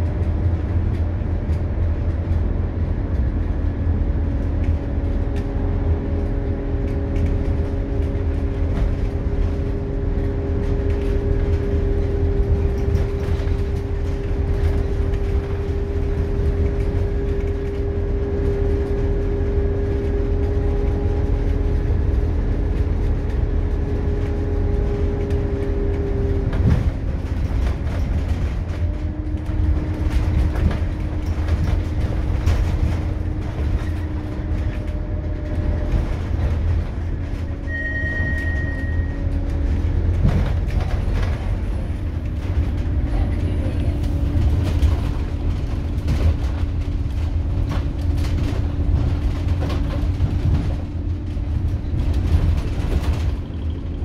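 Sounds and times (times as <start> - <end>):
bus engine and road rumble: 0.0 - 54.0
high beep: 37.7 - 39.2
interior rattles: 38.7 - 54.0.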